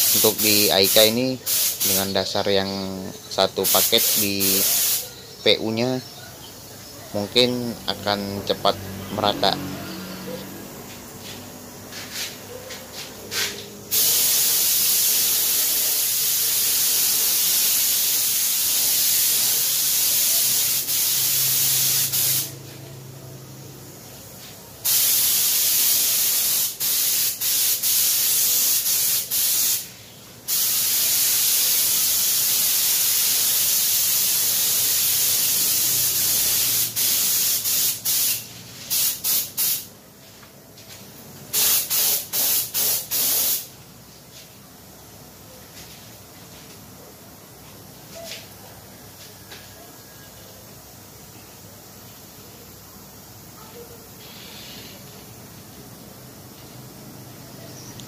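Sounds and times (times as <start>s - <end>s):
spray gun hissing: 0.0s - 2.4s, 3.5s - 5.1s, 13.3s - 22.8s, 24.4s - 39.9s, 41.5s - 43.7s, 54.2s - 55.1s.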